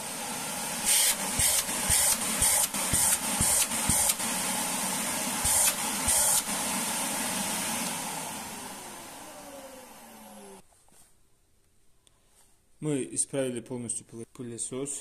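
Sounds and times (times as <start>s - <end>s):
vacuum cleaner running: 0.0s - 10.6s.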